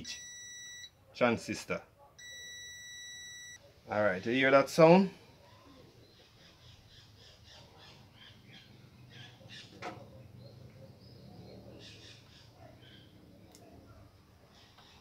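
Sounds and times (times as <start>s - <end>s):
faint birds chirping: 3.5s - 15.0s.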